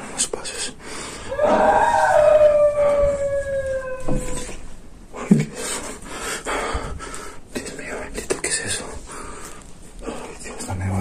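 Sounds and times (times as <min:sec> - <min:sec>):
long wail sliding down in pitch: 0:01.3 - 0:04.6.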